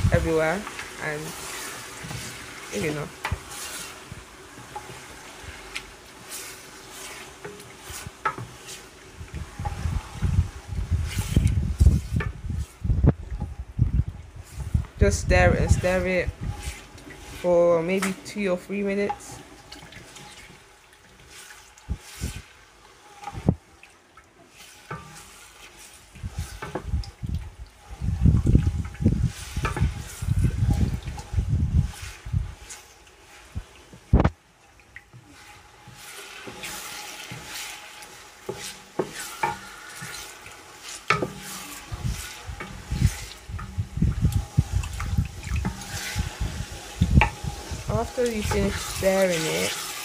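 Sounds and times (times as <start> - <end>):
frying sizzle: 0.0 - 50.0
spoon scraping pot: 14.5 - 19.4, 35.4 - 50.0.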